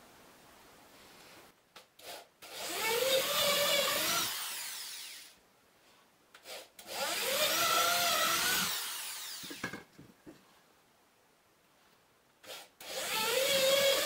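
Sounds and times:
electric drill boring wood: 0:02.0 - 0:05.4, 0:06.4 - 0:09.7, 0:12.5 - 0:14.0.

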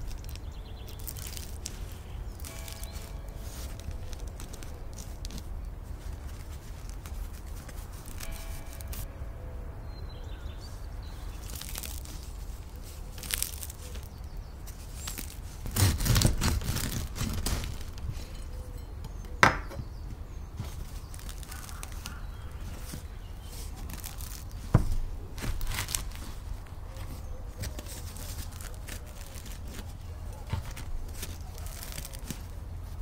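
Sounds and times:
sharp crust cracks: 0:00.0 - 0:09.2, 0:11.1 - 0:33.0
bread knife sawing through crust: 0:15.6 - 0:17.6.

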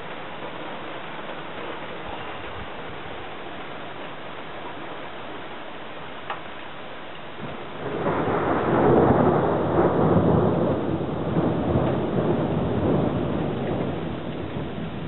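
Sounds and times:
thunder rolling: 0:07.4 - 0:15.0.

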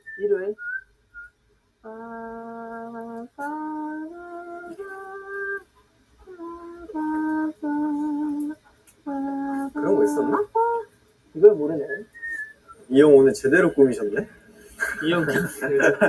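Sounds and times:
slow melody of held notes: 0:01.8 - 0:05.6, 0:06.2 - 0:10.9.

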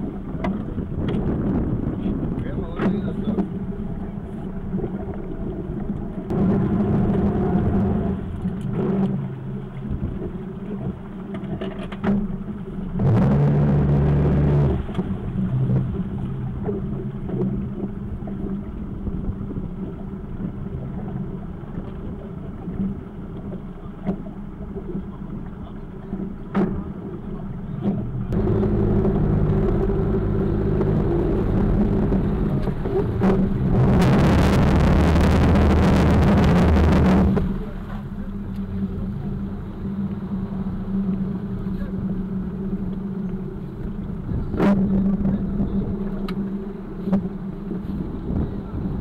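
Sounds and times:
outboard engines running: 0:00.0 - 0:49.0
loud rushing noise: 0:28.3 - 0:37.9.

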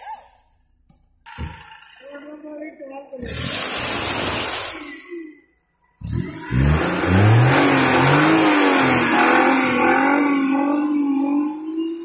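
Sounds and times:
car petrol engine running: 0:06.0 - 0:11.1.

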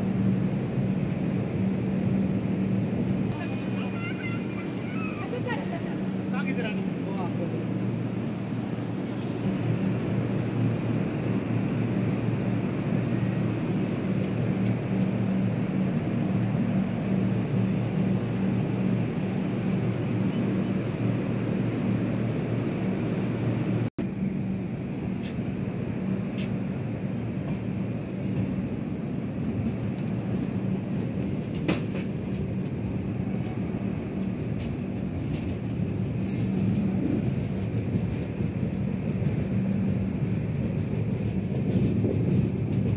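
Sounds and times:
train rumbling: 0:00.0 - 0:42.9
train running noise: 0:00.0 - 0:42.9.

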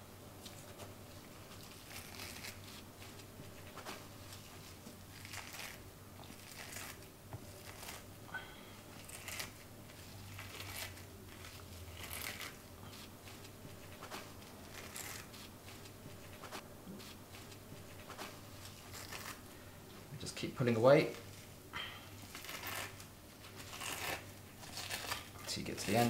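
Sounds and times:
towel rustling and tearing scrapes: 0:00.5 - 0:08.1, 0:08.9 - 0:19.5, 0:22.1 - 0:26.0.

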